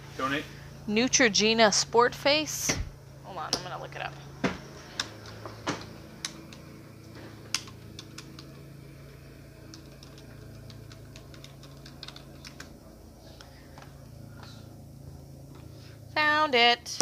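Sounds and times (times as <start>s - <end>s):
low steady hum: 0.0s - 17.0s
computer keyboard typing: 7.5s - 8.6s, 9.6s - 12.7s.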